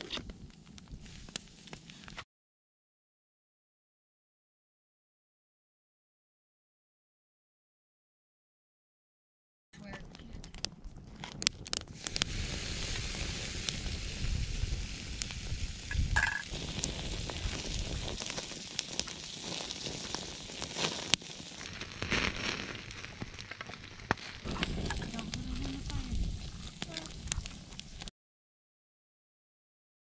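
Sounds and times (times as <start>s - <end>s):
wood fire crackling and popping: 0.0s - 2.2s, 9.8s - 28.1s
steak sizzling: 11.9s - 28.1s.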